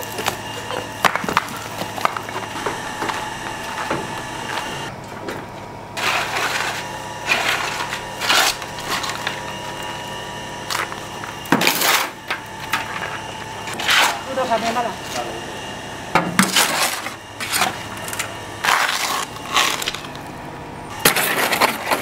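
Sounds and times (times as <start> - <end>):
metal shovel scraping ash: 6.0 - 10.1, 10.7 - 15.3, 16.4 - 20.2, 21.0 - 22.0.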